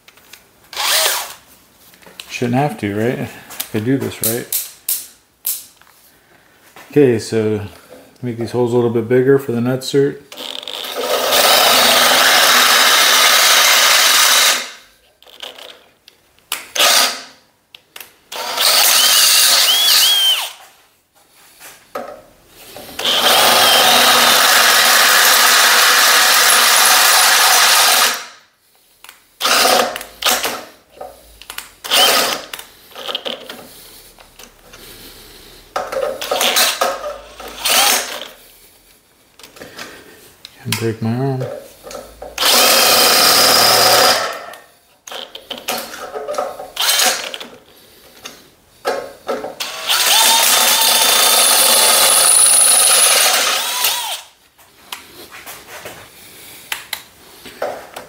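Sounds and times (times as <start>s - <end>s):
cordless drill boring metal: 0.7s - 1.4s, 10.4s - 15.7s, 16.8s - 17.2s, 18.3s - 20.6s, 23.0s - 28.3s, 29.4s - 30.6s, 31.8s - 33.2s, 36.2s - 38.3s, 42.4s - 45.9s, 46.8s - 47.5s, 49.6s - 54.3s.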